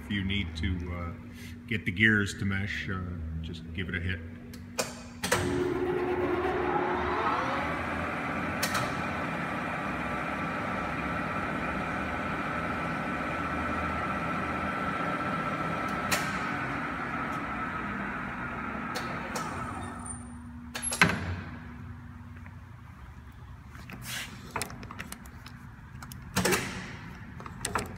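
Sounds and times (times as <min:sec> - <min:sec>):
lathe gear whine: 0:05.5 - 0:15.9.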